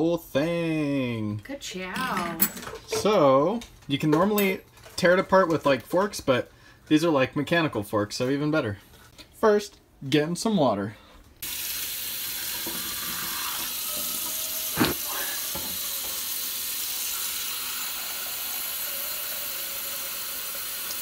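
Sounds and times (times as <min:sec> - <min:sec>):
tap water filling a pot: 0:11.4 - 0:21.0.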